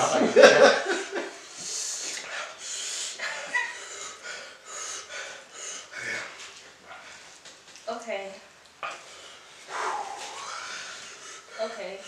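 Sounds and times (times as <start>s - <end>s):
hard hissing mouth breaths: 1.4s - 7.4s, 8.8s - 12.0s.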